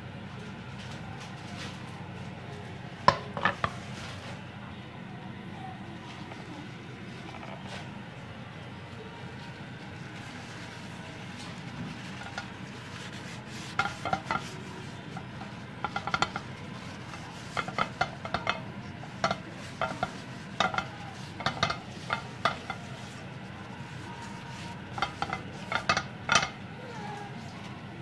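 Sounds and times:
steady low hum: 0.0 - 28.0
paper towel squeaking on pan: 10.0 - 27.7.

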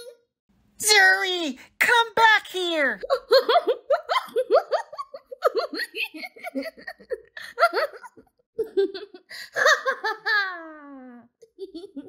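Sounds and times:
girl giggling: 3.0 - 12.0.

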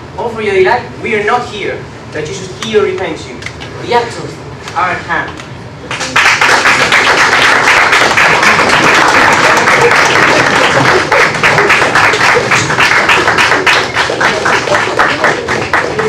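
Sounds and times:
audience applause: 5.9 - 16.0.

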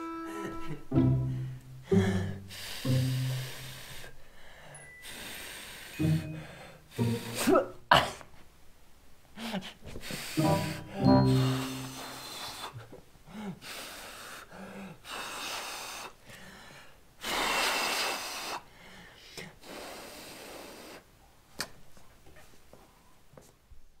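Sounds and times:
breath puffs: 1.4 - 7.6, 9.4 - 21.1.

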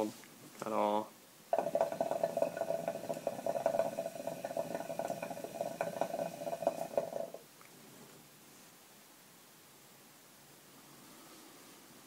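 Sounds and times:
hookah water gurgling: 1.5 - 7.5.

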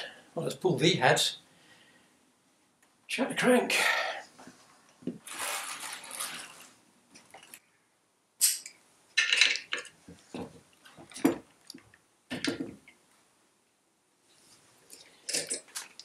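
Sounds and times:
metal tools clinking on metal: 14.9 - 15.9.

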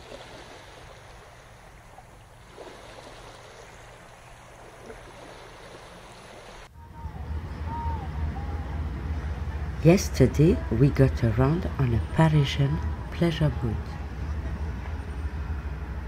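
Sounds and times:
running water rushing: 0.0 - 6.7
low rumble: 6.7 - 16.0
faint wavering high tone: 6.8 - 9.8.

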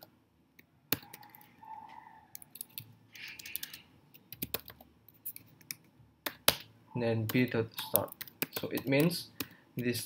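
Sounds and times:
computer keyboard typing: 0.9 - 1.5, 2.3 - 6.6, 7.2 - 9.6.

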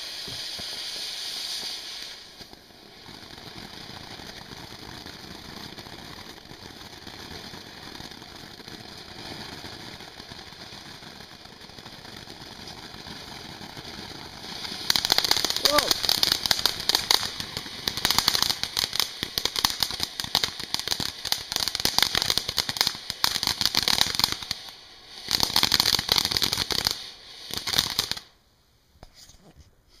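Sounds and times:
firework fountain hissing: 0.0 - 29.4
dense crackling: 14.3 - 19.8.

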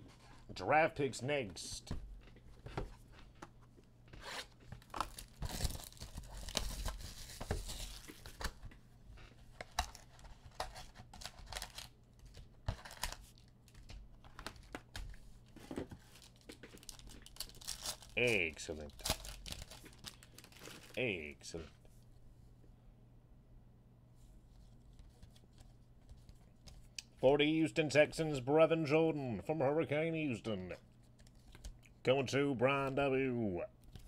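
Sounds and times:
packs being handled: 4.2 - 8.6, 9.6 - 21.2
plastic shrink-wrap tearing: 16.2 - 21.0.

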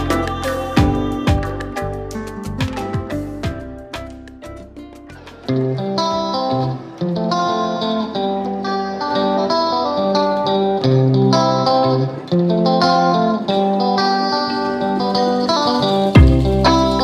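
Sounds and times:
bass notes: 0.0 - 5.8, 16.2 - 17.0
plucked guitar melody: 0.0 - 17.0.

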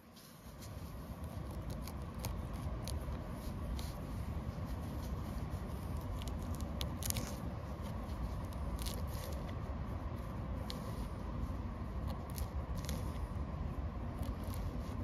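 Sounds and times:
leaves being cut and crushed: 0.9 - 4.0, 5.0 - 9.6, 12.0 - 13.3, 14.2 - 15.0.

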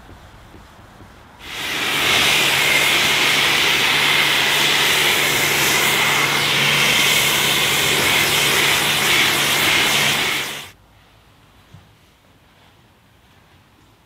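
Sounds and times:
pressure washer low hum: 1.4 - 10.8
pressure washer spray hissing: 1.4 - 10.8.

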